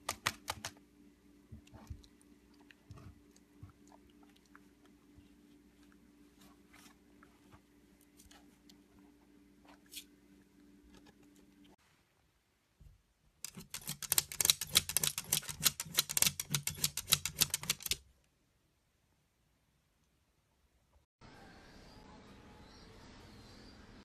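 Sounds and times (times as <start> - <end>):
faint steady hum: 0.0 - 13.5
dog claws scratching mesh screen: 13.4 - 18.0.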